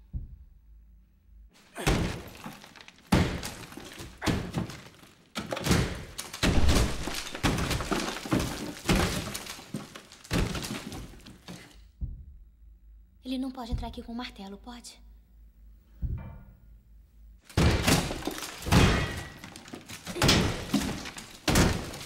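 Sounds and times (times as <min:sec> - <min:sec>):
sledgehammer smashing plaster wall: 0:01.6 - 0:11.8, 0:17.5 - 0:22.0
plaster crumbling and falling: 0:01.8 - 0:11.8, 0:17.4 - 0:22.0.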